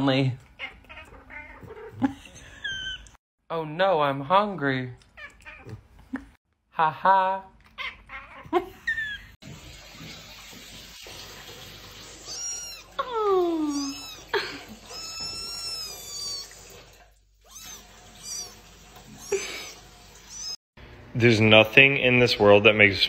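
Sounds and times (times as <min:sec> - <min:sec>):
kitten meowing: 0:12.2 - 0:16.6, 0:17.4 - 0:20.6.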